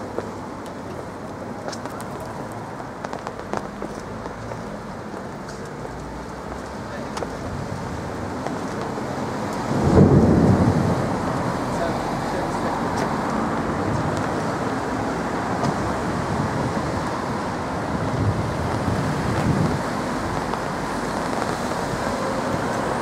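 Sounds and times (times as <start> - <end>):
low rumble of thunder: 9.6 - 11.7.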